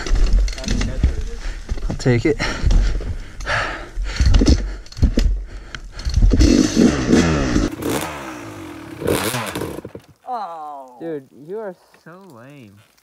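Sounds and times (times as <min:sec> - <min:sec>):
dirt bike engine revving: 0:06.2 - 0:10.1.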